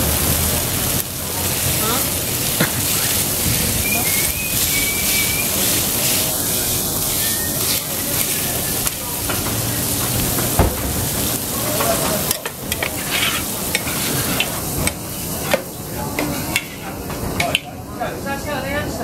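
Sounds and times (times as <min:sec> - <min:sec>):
food sizzling on griddle: 0:00.0 - 0:19.0
metal spatula scraping: 0:11.8 - 0:15.6.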